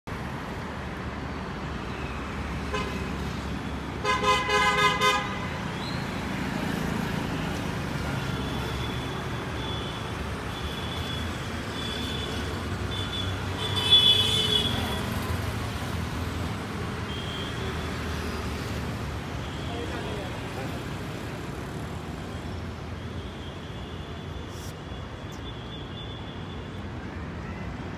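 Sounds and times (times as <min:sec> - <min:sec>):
city traffic rumble: 0:00.0 - 0:27.9
car horn honking: 0:04.0 - 0:05.5.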